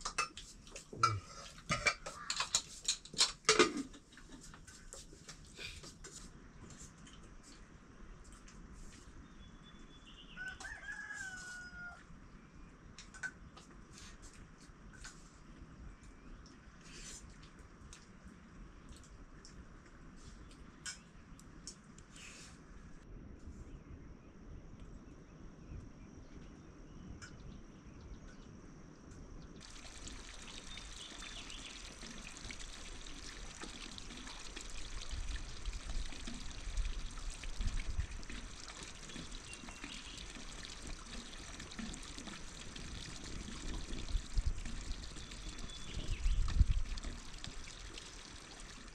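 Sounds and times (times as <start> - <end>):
water rushing: 29.6 - 46.0.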